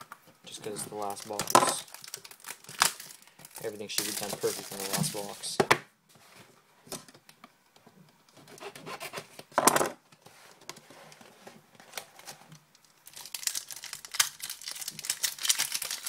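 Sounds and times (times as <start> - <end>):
foil pack crinkling: 0.6 - 5.6, 12.0 - 16.0
cardboard rustling: 3.0 - 5.6.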